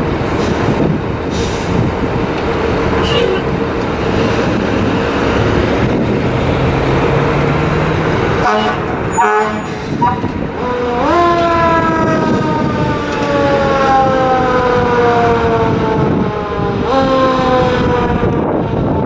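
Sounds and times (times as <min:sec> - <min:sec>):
truck engine running: 0:00.0 - 0:17.0
fire engine siren winding up: 0:08.4 - 0:19.0.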